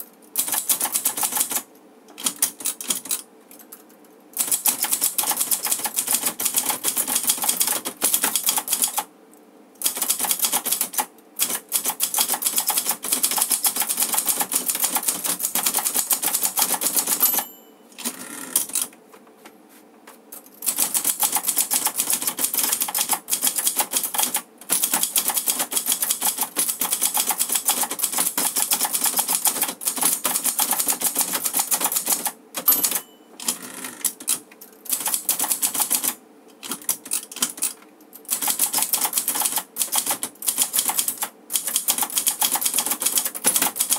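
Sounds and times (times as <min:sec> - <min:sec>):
typewriter keys striking: 0:00.4 - 0:03.2, 0:04.4 - 0:09.1, 0:09.8 - 0:18.9, 0:20.6 - 0:43.9
typewriter carriage return: 0:09.8 - 0:18.9, 0:20.4 - 0:43.9
typewriter bell ring: 0:17.0 - 0:18.0, 0:32.6 - 0:33.5.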